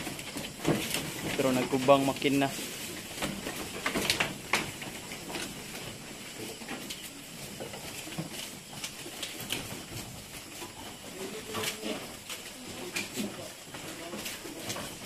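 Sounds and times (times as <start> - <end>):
goats pulling at grass: 0.0 - 15.0.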